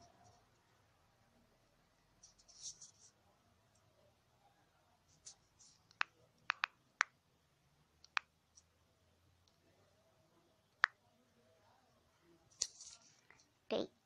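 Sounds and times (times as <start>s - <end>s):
touchscreen typing clicks: 5.8s - 7.1s.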